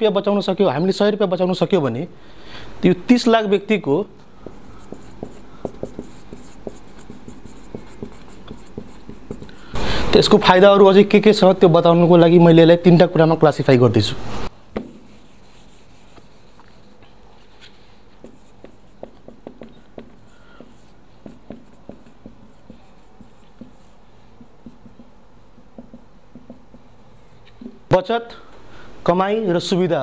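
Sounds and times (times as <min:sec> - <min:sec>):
marker pen squeaking on whiteboard: 0:04.4 - 0:09.7, 0:14.8 - 0:27.8.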